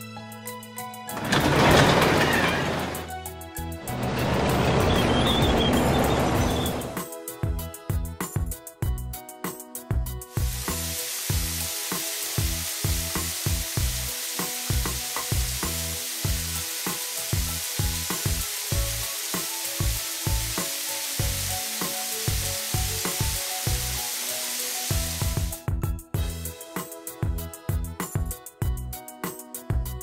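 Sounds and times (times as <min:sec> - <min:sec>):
steady spraying hiss: 0:10.3 - 0:25.6.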